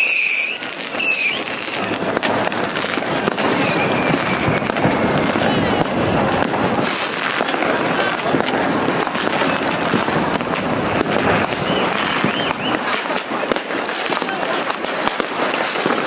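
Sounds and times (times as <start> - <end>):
short whistles: 0.0 - 1.5, 3.5 - 4.8, 11.5 - 12.8
crowd hubbub: 0.0 - 16.0
fireworks cracking and banging: 0.0 - 16.0.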